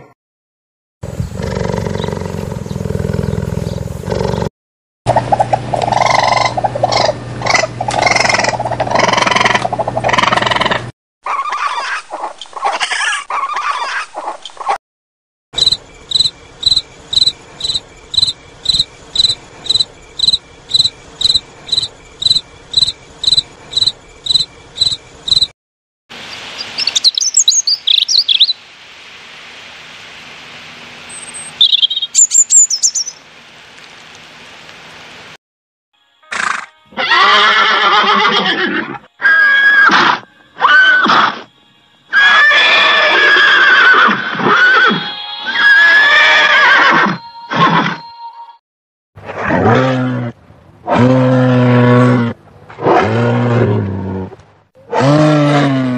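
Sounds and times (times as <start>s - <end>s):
cricket chirping: 15.6s - 25.5s
robin singing: 15.6s - 25.5s, 26.3s - 28.6s, 31.1s - 33.2s
horse whinnying: 36.3s - 41.4s, 42.1s - 48.0s.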